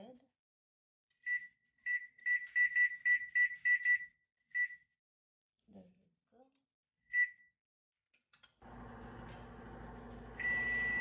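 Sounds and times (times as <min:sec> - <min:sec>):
oven control panel beeping: 0:10.1 - 0:11.0.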